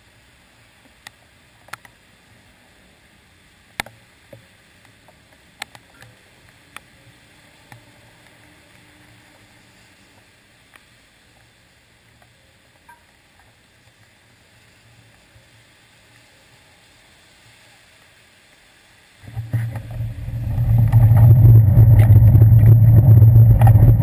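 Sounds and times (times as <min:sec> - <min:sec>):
muffled traffic on wet street: 0:00.0 - 0:24.0
raindrops tapping on camera housing: 0:03.7 - 0:06.9, 0:19.2 - 0:24.0.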